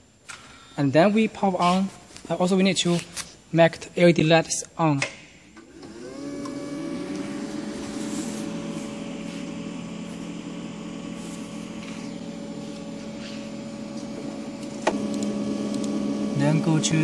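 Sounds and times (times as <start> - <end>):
cooling fans humming: 5.6 - 17.0.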